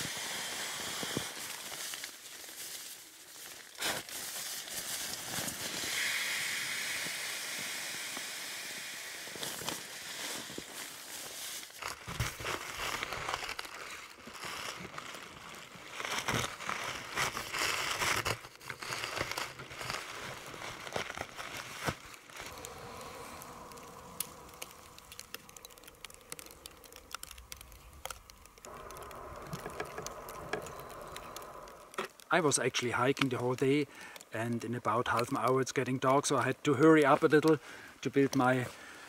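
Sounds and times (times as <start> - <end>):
rustling and crinkling gear: 9.4 - 34.2
faint hum: 22.4 - 32.1.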